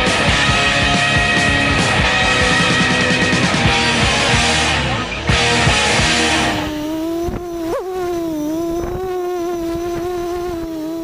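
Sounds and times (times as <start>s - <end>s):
rock music: 0.0s - 6.7s
drone motors whining: 4.5s - 11.0s.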